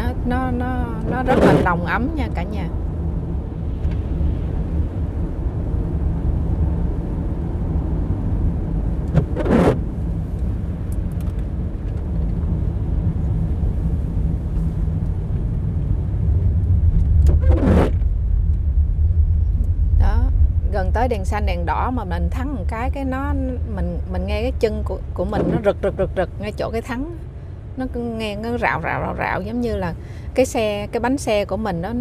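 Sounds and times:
engine and tyre rumble: 0.0s - 32.0s
windshield wipers sweeping: 1.0s - 1.7s, 9.0s - 11.1s, 17.0s - 18.1s.

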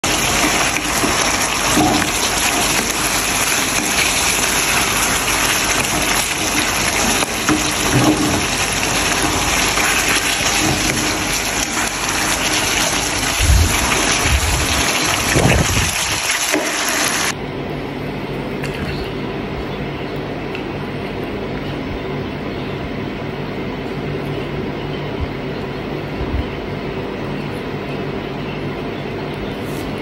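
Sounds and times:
sauce sizzling in hot pan: 0.0s - 17.3s.

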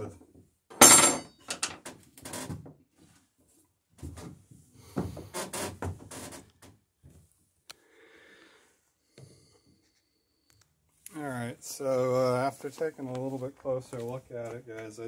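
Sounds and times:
wooden knocks and scrapes: 4.0s - 6.5s.

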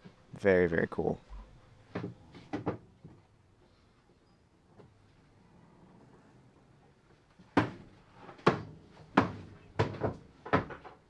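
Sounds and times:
sharp knocks: 7.6s - 11.0s.

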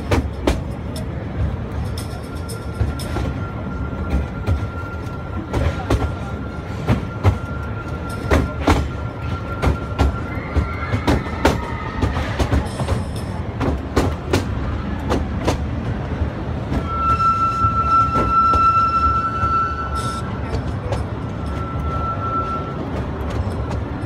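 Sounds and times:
train wheels clickety-clack: 0.0s - 24.0s
high wheel squeal: 2.0s - 13.4s, 16.7s - 23.8s.

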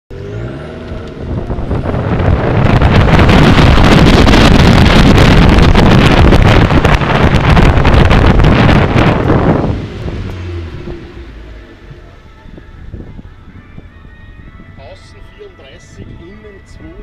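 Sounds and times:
race car engine revving: 0.1s - 12.3s
wind buffeting on microphone: 0.1s - 17.0s.

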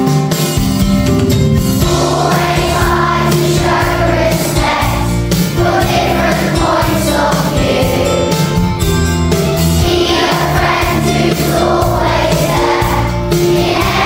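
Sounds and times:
instrumental backing music: 0.0s - 14.0s
voices singing: 1.8s - 8.7s, 9.8s - 14.0s.

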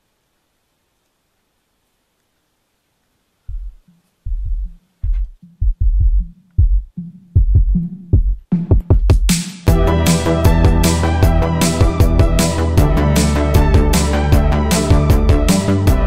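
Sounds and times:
pulsing deep bass beat: 3.5s - 16.0s.

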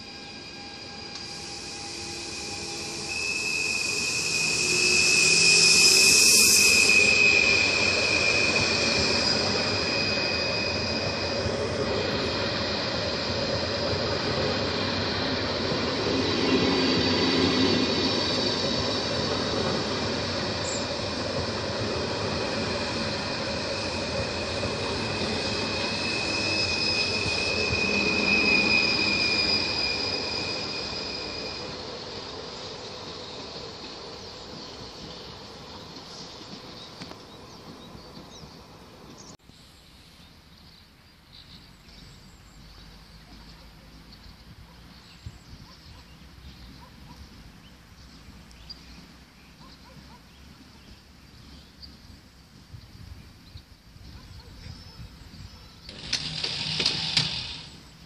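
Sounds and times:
high-pitched train squeal: 0.0s - 39.4s, 54.0s - 58.0s
train wheels rumbling: 0.0s - 39.4s, 54.7s - 58.0s.

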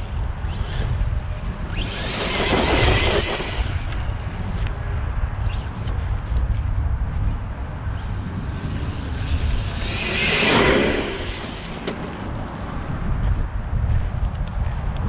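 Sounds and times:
wind noise on microphone: 0.0s - 15.0s
rc truck passing at speed: 0.4s - 4.6s, 7.9s - 12.8s.

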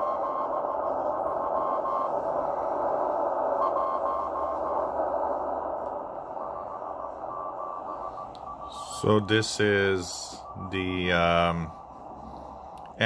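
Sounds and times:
morse code beeps: 0.0s - 2.2s, 6.4s - 12.3s
radio static hiss: 0.0s - 13.0s.

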